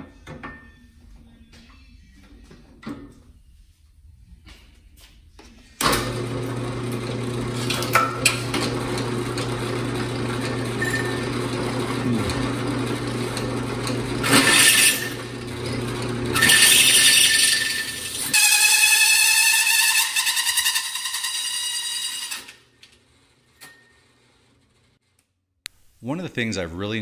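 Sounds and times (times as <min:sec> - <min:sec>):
drill press motor humming: 0:05.9 - 0:19.3
hole saw grinding steel: 0:07.2 - 0:22.6.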